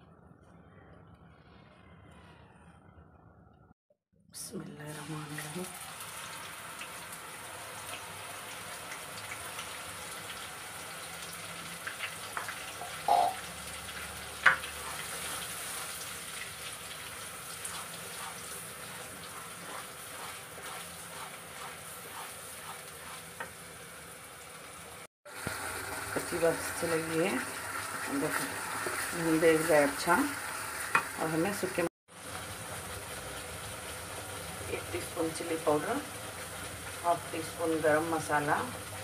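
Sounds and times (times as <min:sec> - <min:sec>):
paste sizzling in hot oil: 0:05.4 - 0:39.0
plastic spatula scraping a pan: 0:17.6 - 0:23.6.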